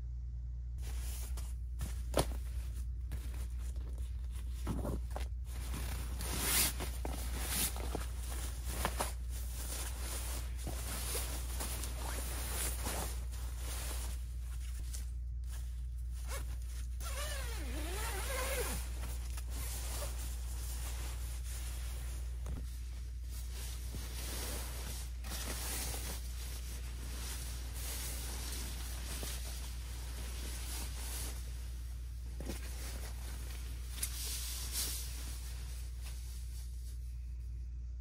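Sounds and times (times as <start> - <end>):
nylon sleeping bag rustling: 0.8 - 37.0
zipper: 16.2 - 19.0.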